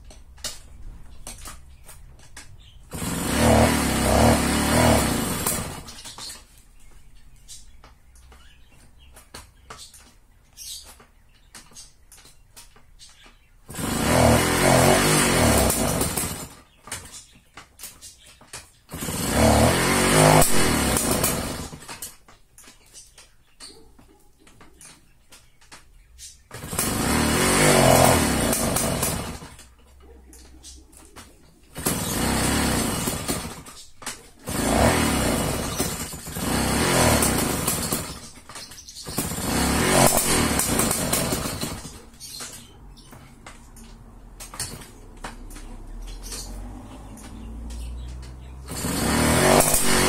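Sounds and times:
moped engine pedal-started: 13.2s - 17.3s, 26.2s - 29.8s, 30.4s - 50.0s.

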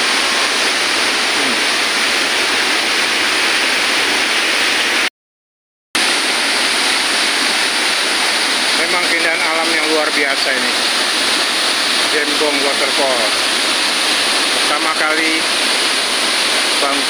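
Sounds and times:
waterfall rushing over rocks: 0.0s - 5.1s, 6.0s - 17.0s.

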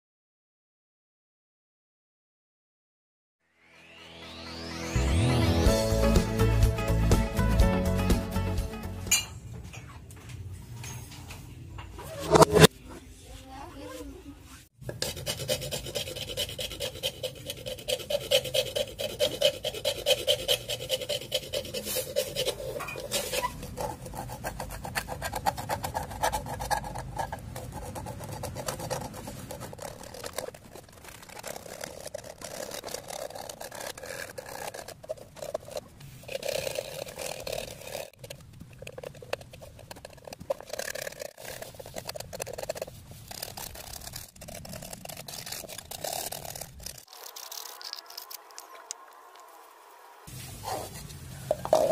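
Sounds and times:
knife scraping coconut husk: 14.8s - 49.5s.

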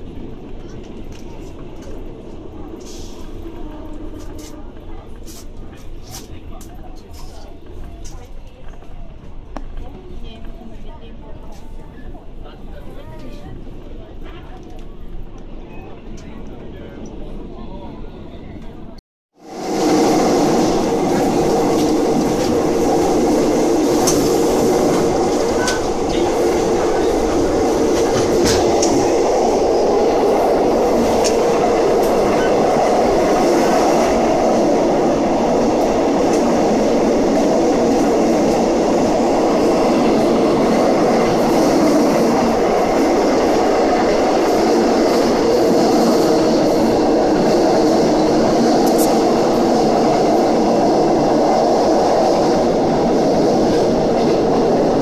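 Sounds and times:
train wheels rumbling on rail: 0.0s - 55.0s
sharp rail clicks: 21.1s - 29.7s, 48.8s - 49.4s.

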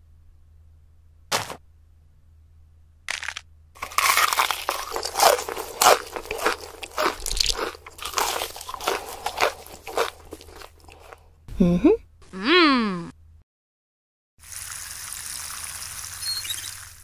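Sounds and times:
crunchy chewing: 3.1s - 11.3s.

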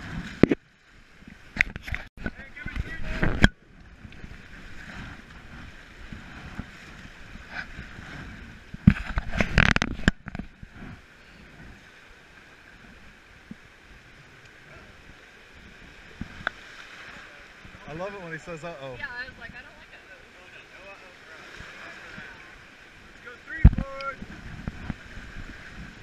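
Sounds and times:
whitewater river rushing: 14.6s - 25.6s.

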